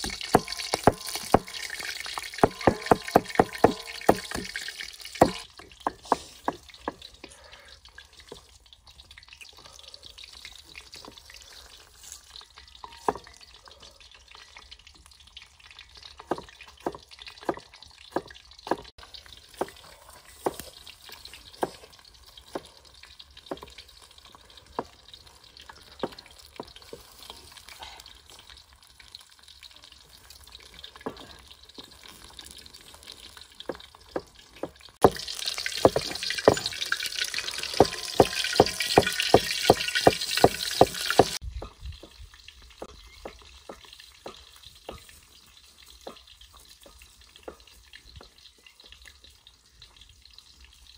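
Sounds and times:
cleaver chopping on wooden block: 0.0 - 1.5, 2.4 - 4.5, 5.2 - 5.4, 35.8 - 36.7, 37.7 - 41.4
fish sizzling in a wok: 0.0 - 50.9.

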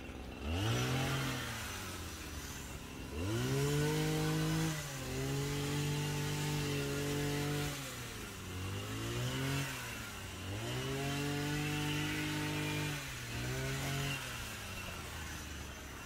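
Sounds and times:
hedge trimmer engine revving: 0.0 - 16.0.

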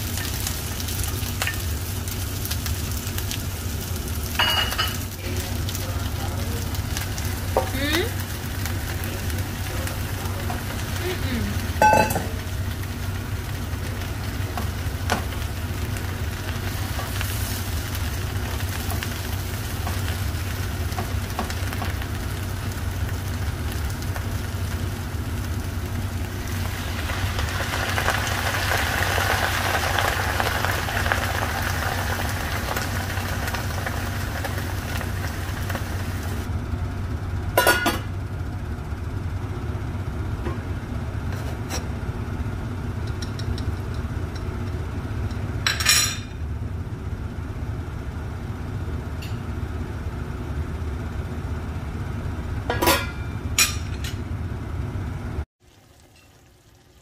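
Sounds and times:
faint sizzle in skillet: 0.0 - 37.2, 55.6 - 57.0
steady low hum: 0.0 - 55.5.

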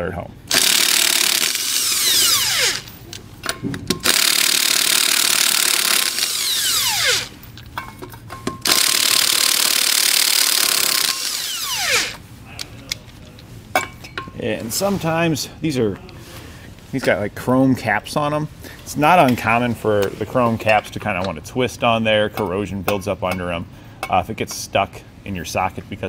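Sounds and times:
impact wrench spinning: 0.5 - 12.2.

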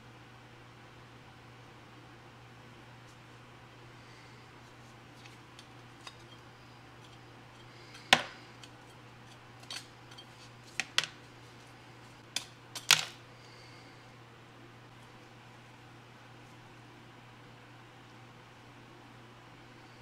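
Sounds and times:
metal scraper scraping rust: 5.2 - 6.4, 7.0 - 10.9.

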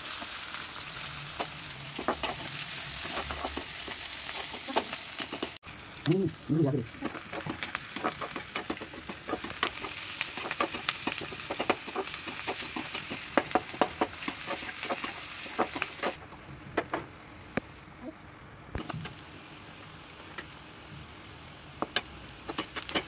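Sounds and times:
onions sizzling in oil: 0.0 - 16.4, 17.1 - 23.0.

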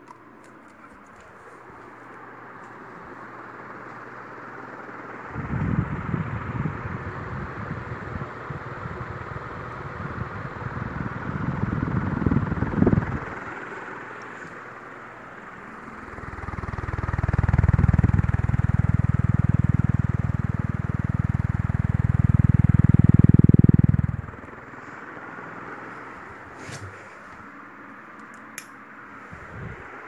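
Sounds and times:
ceiling fan whoosh: 0.0 - 30.0
airflow buffeting microphone: 5.2 - 27.6, 29.1 - 30.0.

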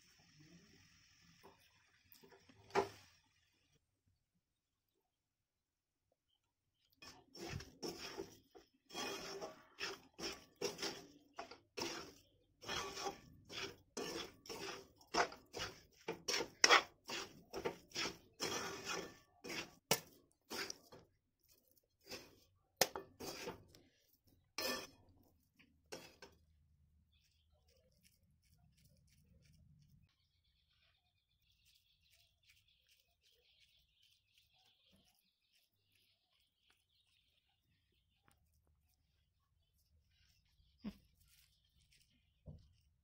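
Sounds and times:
metal spatula scraping a wok: 7.0 - 21.1, 22.0 - 25.2, 25.9 - 26.4.

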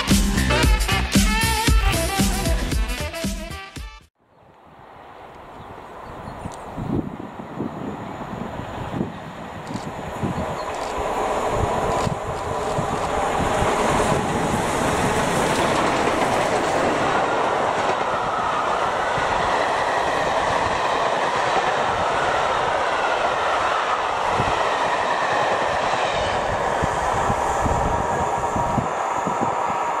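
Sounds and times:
steam locomotives passing: 4.6 - 30.0
wheel and rail rushing noise: 4.6 - 30.0
clickety-clack over rail joints: 9.1 - 22.0.

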